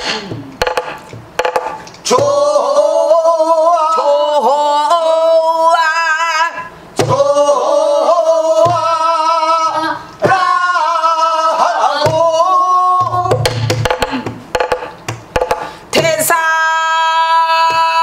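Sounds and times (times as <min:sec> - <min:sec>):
woman singing with vibrato: 0:02.0 - 0:13.6, 0:15.9 - 0:18.0.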